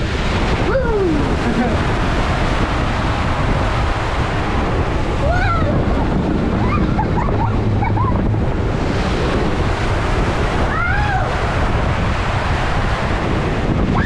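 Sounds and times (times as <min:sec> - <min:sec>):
water rushing under a raft: 0:00.0 - 0:14.0
wind buffeting microphone: 0:00.0 - 0:14.0.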